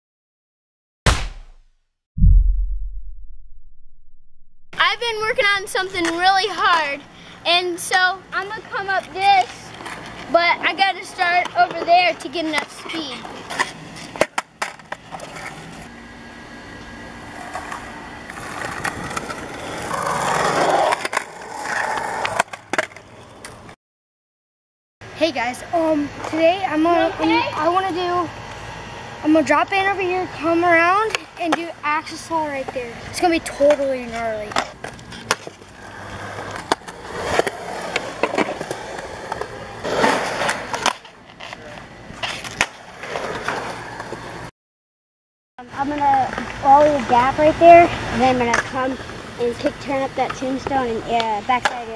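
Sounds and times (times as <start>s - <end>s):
skateboard wheels rolling on concrete: 5.0s - 23.8s, 25.6s - 44.5s, 45.7s - 51.9s
skateboard wheels rumbling on concrete: 17.2s - 23.7s, 31.0s - 44.5s
skateboard clacks: 50.3s - 51.9s.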